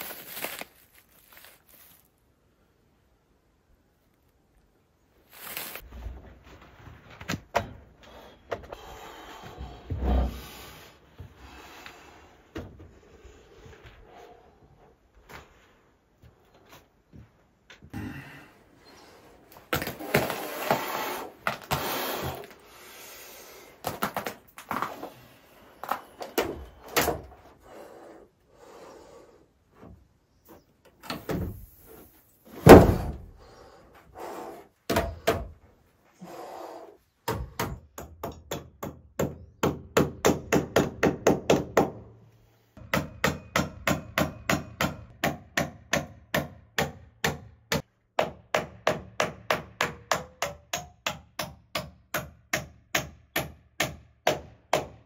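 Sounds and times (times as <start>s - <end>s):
heavy wooden thud: 32.6s - 33.3s.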